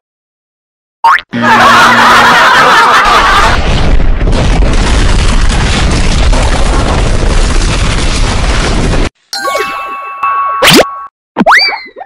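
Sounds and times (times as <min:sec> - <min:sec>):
deep rumbling boom: 0:03.4 - 0:09.1.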